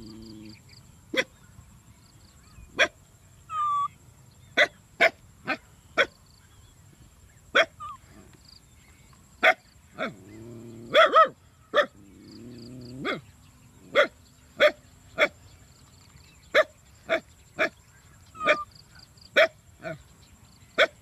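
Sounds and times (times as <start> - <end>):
faint low hum: 0.0 - 20.8
sharp animal calls: 3.5 - 3.9, 7.6 - 8.2, 17.1 - 18.8.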